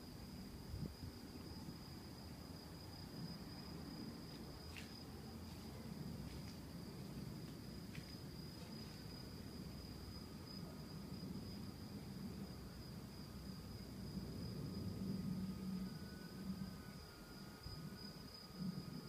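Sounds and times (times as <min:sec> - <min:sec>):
crickets calling: 0:00.0 - 0:19.0
sharp cricket chirps: 0:00.0 - 0:19.0.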